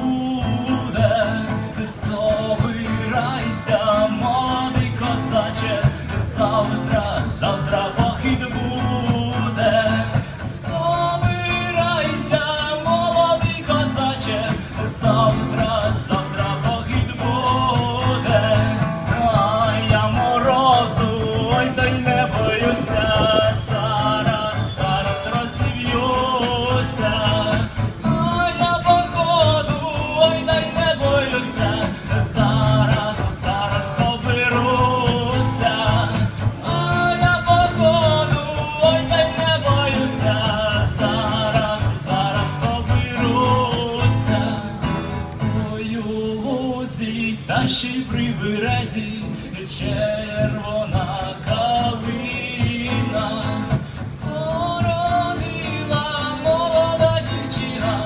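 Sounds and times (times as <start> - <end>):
person singing: 0.0 - 44.9
acoustic guitar strumming: 0.0 - 58.0.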